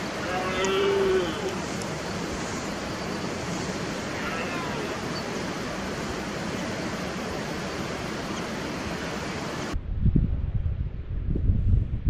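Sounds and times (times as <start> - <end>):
steady hiss: 0.0 - 9.8
wind buffeting microphone: 4.8 - 12.0.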